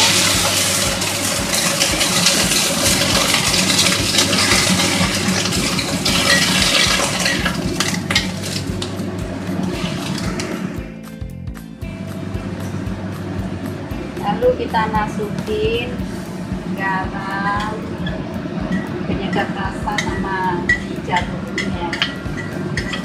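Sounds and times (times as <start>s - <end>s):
metal spatula scraping wok: 0.0s - 10.8s, 17.6s - 23.0s
water sizzling in hot wok: 0.0s - 10.9s.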